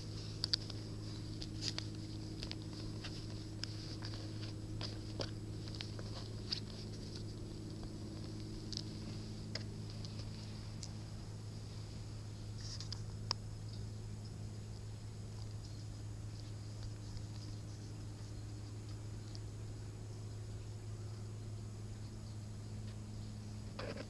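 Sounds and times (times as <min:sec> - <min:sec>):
steady low hum: 0:00.0 - 0:24.0
light clicks and taps: 0:00.4 - 0:11.0.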